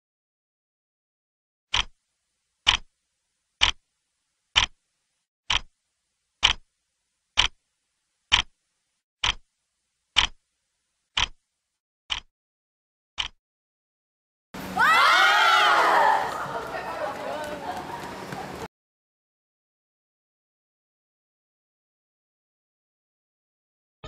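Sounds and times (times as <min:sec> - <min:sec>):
clock ticking: 0:01.7 - 0:02.0, 0:02.7 - 0:02.9, 0:03.6 - 0:03.8, 0:04.6 - 0:04.8, 0:05.5 - 0:05.8, 0:06.4 - 0:06.7, 0:07.4 - 0:07.6, 0:08.3 - 0:08.6, 0:09.2 - 0:09.5, 0:10.2 - 0:10.4, 0:11.2 - 0:11.4, 0:12.1 - 0:12.3, 0:13.2 - 0:13.4.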